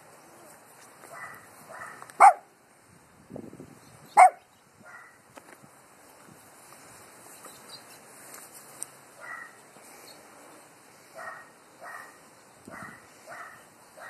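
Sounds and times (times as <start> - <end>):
small dog barking: 1.1 - 2.5, 4.2 - 5.2, 9.2 - 9.6, 11.2 - 14.0.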